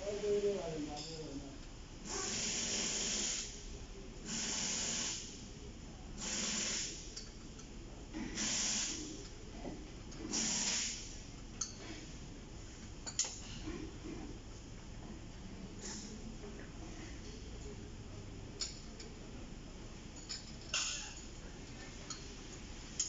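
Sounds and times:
hissing bursts: 2.1s - 3.5s.

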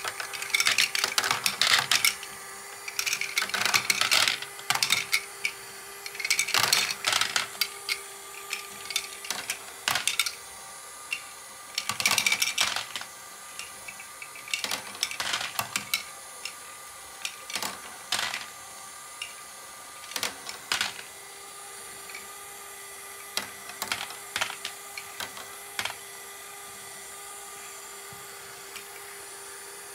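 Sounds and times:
plastic balls clattering: 0.0s - 2.2s, 2.8s - 10.4s, 11.1s - 16.1s, 17.2s - 18.5s, 20.0s - 21.1s, 23.2s - 26.0s
motor and gear whir: 0.0s - 29.9s.

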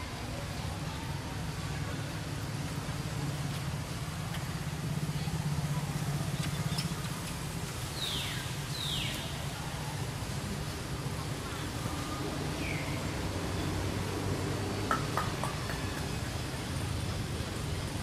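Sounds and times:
low engine-like rumble: 0.0s - 18.0s.

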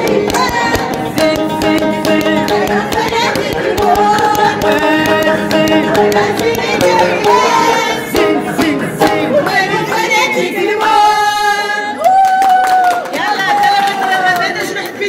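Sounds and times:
plucked folk lute: 0.0s - 11.0s
rhythmic percussive beats: 0.0s - 11.7s
person singing: 0.0s - 12.1s.

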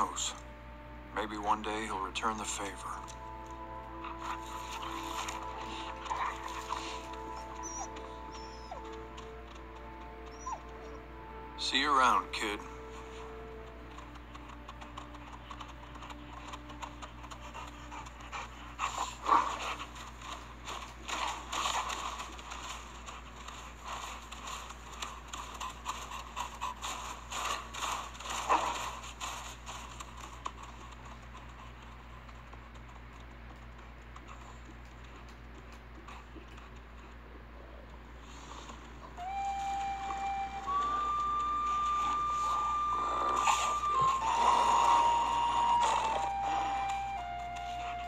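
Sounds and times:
footsteps crunching in snow: 2.9s - 10.2s, 12.4s - 31.8s
wolf panting and sniffing: 3.0s - 11.4s, 12.7s - 48.0s
wolf snorts: 4.1s - 8.9s, 17.1s - 24.2s, 40.7s - 47.4s.

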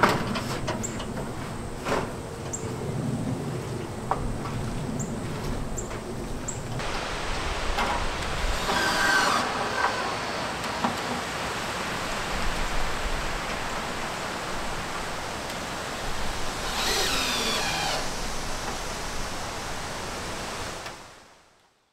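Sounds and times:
cordless drill whining: 8.6s - 10.6s, 16.5s - 18.2s.

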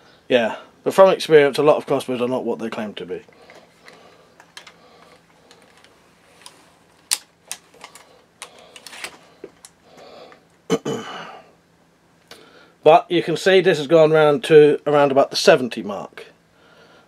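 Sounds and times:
crossbow clicks and rattles: 3.3s - 10.4s.

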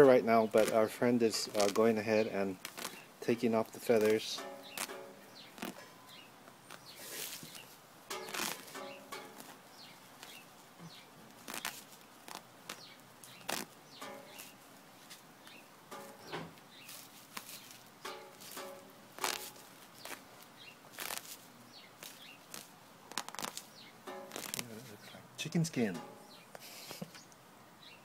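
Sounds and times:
feathers ripping: 2.6s - 3.0s, 3.8s - 5.9s, 6.7s - 10.4s, 11.3s - 15.2s, 16.8s - 25.0s.

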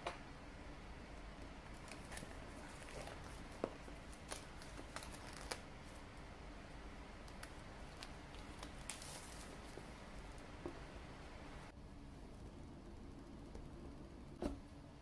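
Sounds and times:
plastic shrink-wrap crinkling: 1.7s - 6.0s, 7.3s - 10.4s.

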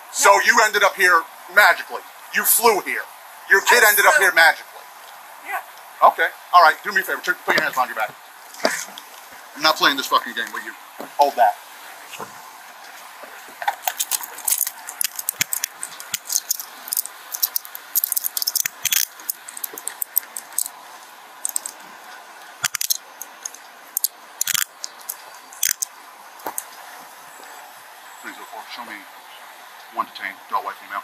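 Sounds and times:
handcuffs clinking and ratcheting: 13.8s - 20.8s, 21.4s - 21.8s, 22.6s - 25.9s.

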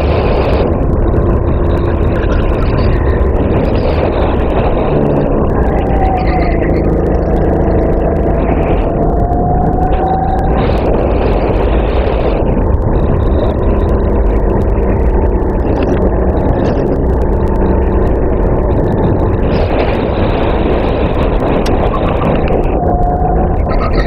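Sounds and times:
racing kart engine: 0.0s - 24.0s.

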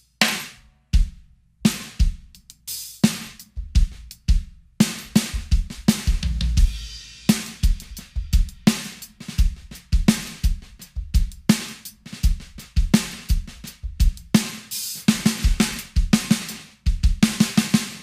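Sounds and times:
cymbals: 0.0s - 4.2s, 4.8s - 18.0s
bass drum: 0.0s - 17.9s
snare hits with metallic sizzle: 0.2s - 0.6s.

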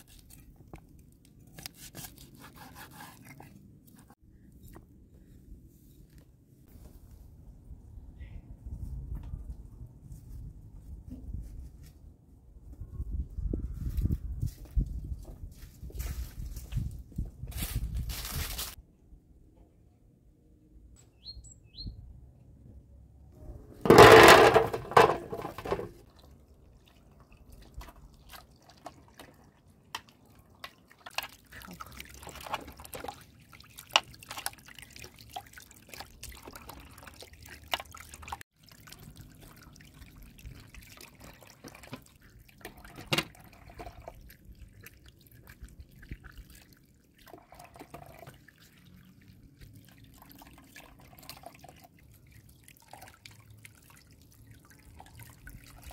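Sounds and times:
hose water splashing into metal basin: 23.8s - 55.9s.

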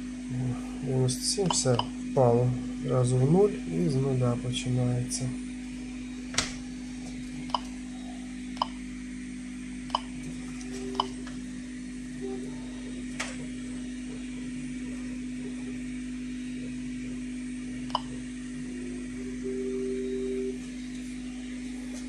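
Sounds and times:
steady low hum: 0.0s - 22.0s
geiger counter clicks: 1.4s - 1.9s, 8.6s - 8.8s, 9.9s - 10.1s.

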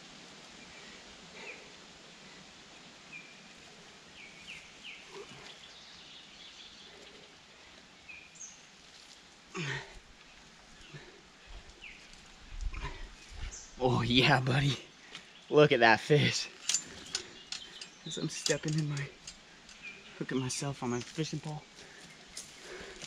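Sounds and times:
steady hiss: 0.0s - 23.0s
bird chirps: 16.5s - 22.4s.

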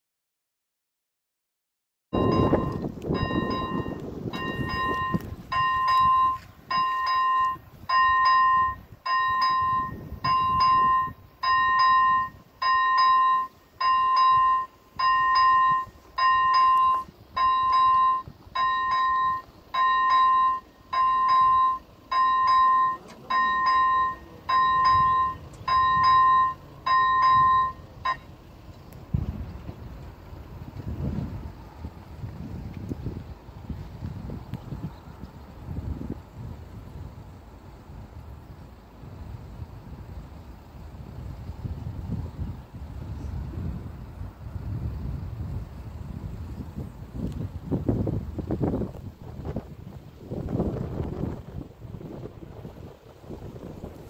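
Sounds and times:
wind on microphone: 2.2s - 22.8s, 24.6s - 54.0s
level crossing bell tones: 2.2s - 28.3s.

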